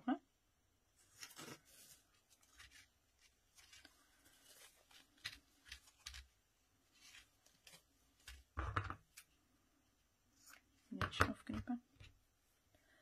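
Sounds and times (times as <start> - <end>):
crinkle ribbon rustling: 0.9 - 9.4.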